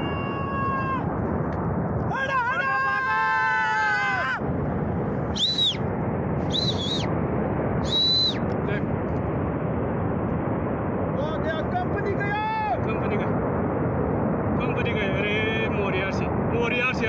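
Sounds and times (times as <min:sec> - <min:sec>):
man shouting: 0:02.1 - 0:04.4, 0:12.3 - 0:12.8
short high whistles: 0:05.3 - 0:05.8, 0:06.5 - 0:07.1, 0:07.8 - 0:08.4.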